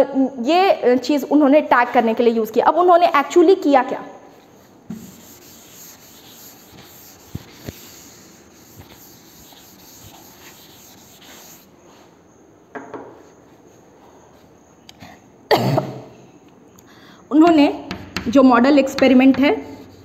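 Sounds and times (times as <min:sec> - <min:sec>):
eraser scrubbing a blackboard: 0:04.3 - 0:12.1, 0:19.0 - 0:20.0
light knocks: 0:12.7 - 0:13.2.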